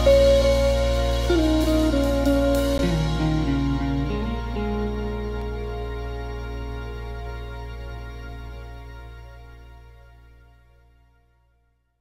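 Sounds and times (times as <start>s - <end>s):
held music chord: 0.0s - 11.0s.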